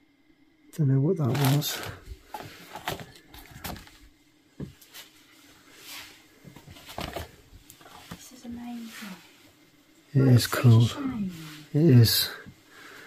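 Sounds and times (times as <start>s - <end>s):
papers rustling: 1.2s - 4.1s, 6.4s - 9.2s.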